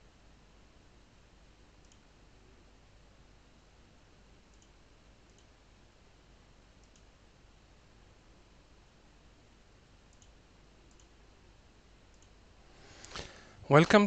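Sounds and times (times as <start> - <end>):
faint double clicks: 6.8 - 7.1.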